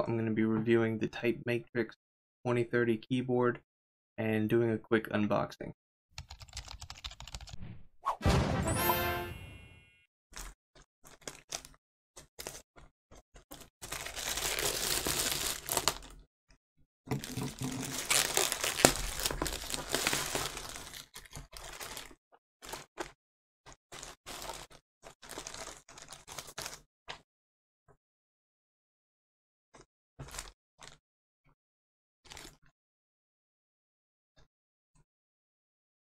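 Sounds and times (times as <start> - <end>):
plastic bag tearing: 13.5 - 16.2, 17.2 - 22.9, 23.9 - 26.8
light plastic rustles: 17.1 - 23.1.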